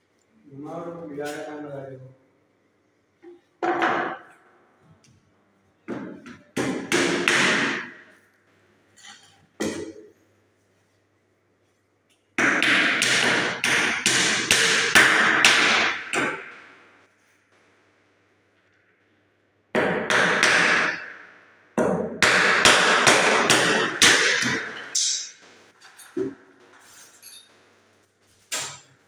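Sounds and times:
hammer nailing wood: 6.6s - 8.0s, 12.4s - 16.6s, 19.8s - 21.2s, 21.8s - 25.0s.

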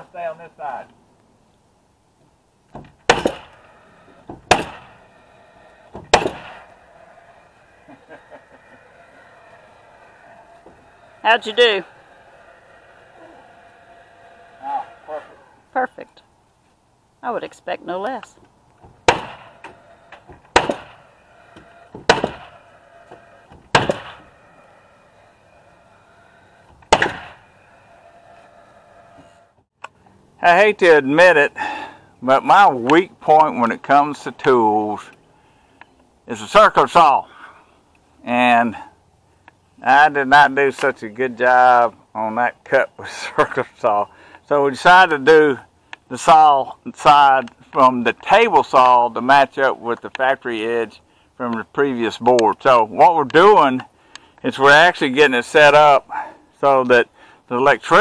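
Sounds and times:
nail gun firing: 2.8s - 3.6s, 4.3s - 4.9s, 5.9s - 6.6s, 19.0s - 19.8s, 20.5s - 21.0s, 21.6s - 22.6s, 23.7s - 24.2s, 26.8s - 27.4s.

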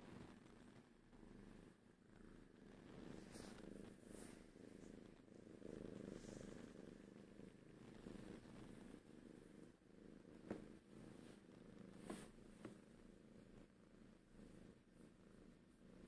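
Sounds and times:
cat purring: 0.0s - 16.0s.

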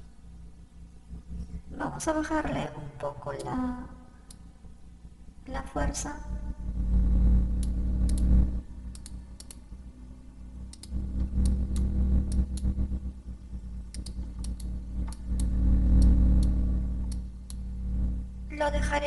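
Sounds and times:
low hum: 0.0s - 19.0s
computer mouse clicks: 4.2s - 4.5s, 7.6s - 9.7s, 10.6s - 12.8s, 13.9s - 17.6s.

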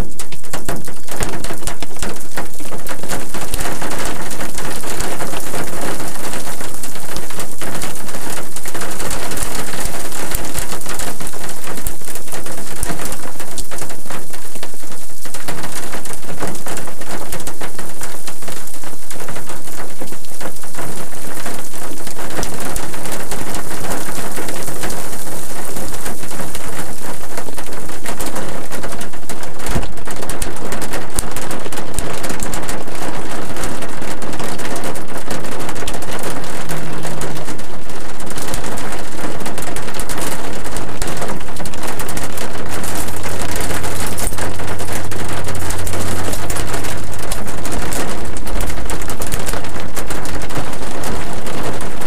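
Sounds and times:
rain on car windshield and roof: 0.0s - 52.0s.

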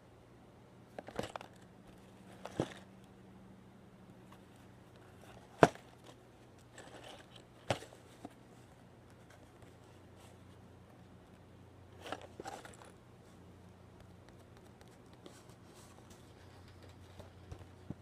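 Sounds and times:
faint low hum: 0.0s - 18.0s
cardboard rustling: 12.0s - 13.0s.

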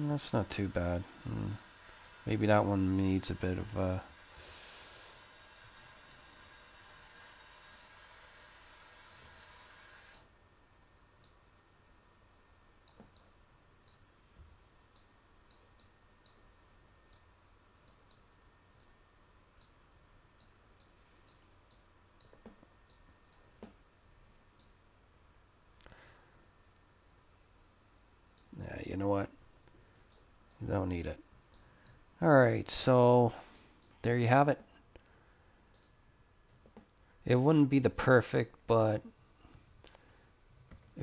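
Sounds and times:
low background hiss: 0.0s - 41.0s
computer mouse clicks: 5.4s - 10.3s, 12.8s - 14.0s, 14.9s - 16.4s, 17.1s - 19.0s, 19.6s - 19.8s, 20.4s - 24.8s, 35.7s - 36.0s.

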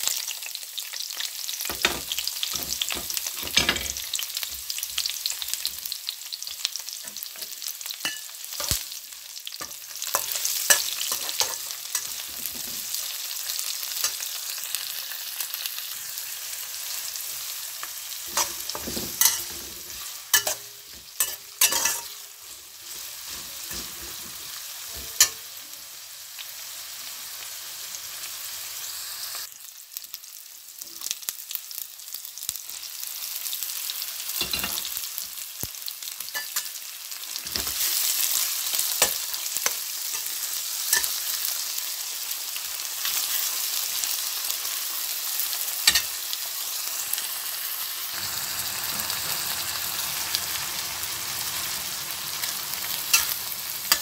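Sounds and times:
onion and garlic sizzling in oil: 0.0s - 54.0s
metal spoon clinking on pan: 7.0s - 8.8s, 9.6s - 12.3s, 18.4s - 19.6s, 20.3s - 22.2s, 34.4s - 34.9s, 36.3s - 36.8s, 40.9s - 41.2s, 45.8s - 46.1s, 53.1s - 54.0s.

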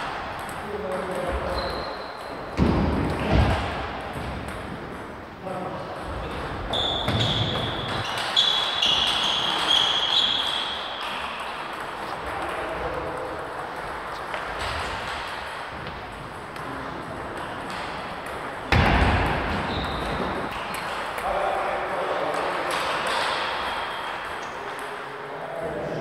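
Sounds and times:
table tennis balls clicking: 5.9s - 21.2s
short high squeaks: 6.7s - 11.0s.

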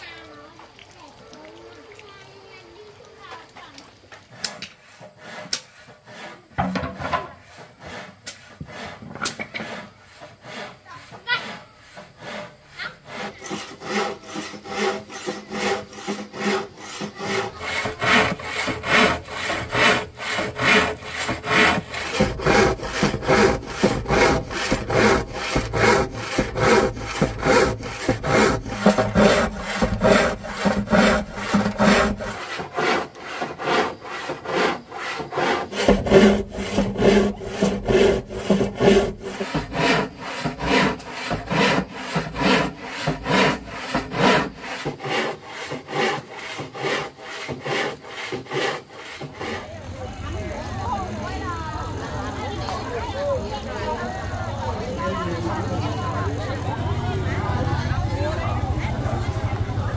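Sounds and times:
hand saw cutting wood: 4.2s - 49.9s.

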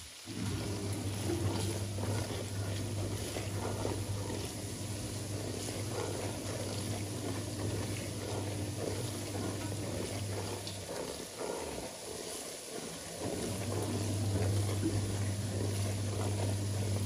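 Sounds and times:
onions sizzling in oil: 0.0s - 1.2s, 12.0s - 14.7s
wooden spoon stirring pot: 0.3s - 17.0s.

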